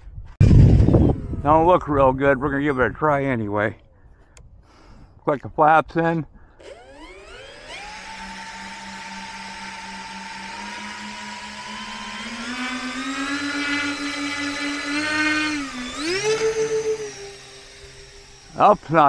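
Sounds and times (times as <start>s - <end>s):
electric motors and propellers whining: 0.4s - 2.6s, 6.5s - 19.0s.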